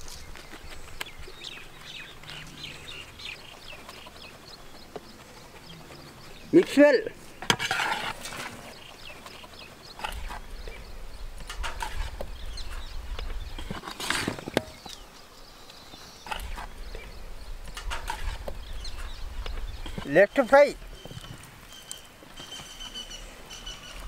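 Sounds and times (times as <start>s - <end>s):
wind rumble on microphone: 10.1s - 13.8s, 16.4s - 20.1s.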